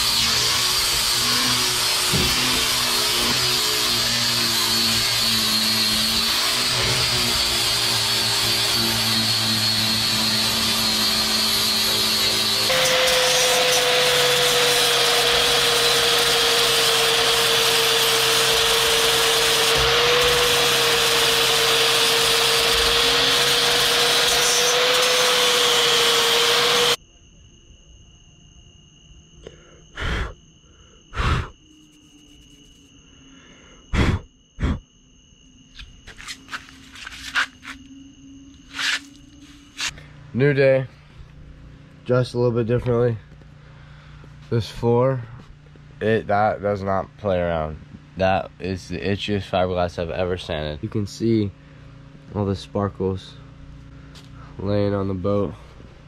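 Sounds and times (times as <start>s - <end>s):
angle grinder sanding whine: 0.0s - 27.0s, 31.6s - 33.8s, 35.3s - 56.0s
faint steady high tone: 27.0s - 56.0s.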